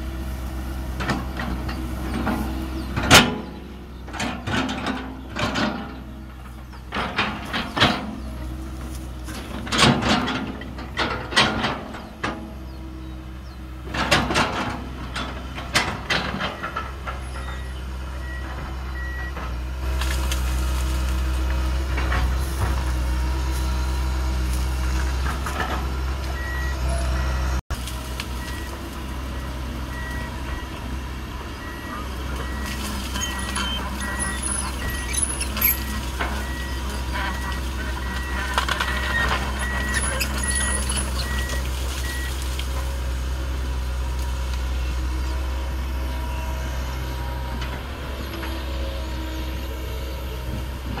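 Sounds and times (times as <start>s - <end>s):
excavator diesel engine: 0.0s - 51.0s
roots cracking and scraping: 19.8s - 25.9s, 27.7s - 44.7s.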